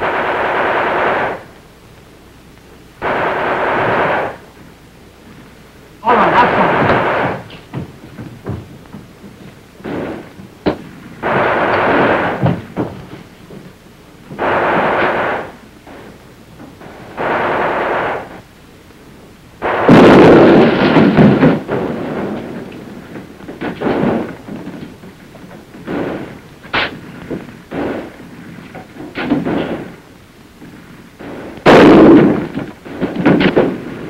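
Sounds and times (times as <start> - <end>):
gunfire bursts: 0.0 - 1.6, 3.0 - 4.5, 6.0 - 7.6, 9.8 - 12.8, 14.4 - 16.1, 16.8 - 18.4, 19.6 - 22.4, 27.7 - 28.2, 31.2 - 33.9
loud explosion blast: 6.0 - 7.6, 9.8 - 12.9, 19.6 - 22.6, 31.2 - 34.0.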